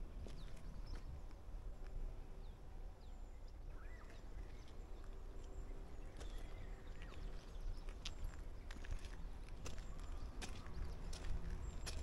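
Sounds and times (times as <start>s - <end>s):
wind rumble on microphone: 0.0s - 2.8s.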